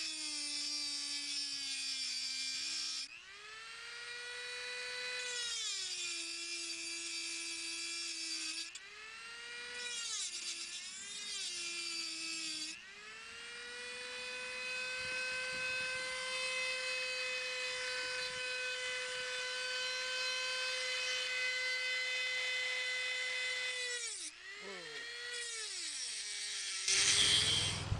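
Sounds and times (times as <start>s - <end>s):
rotary tool grinding metal: 0.0s - 27.9s.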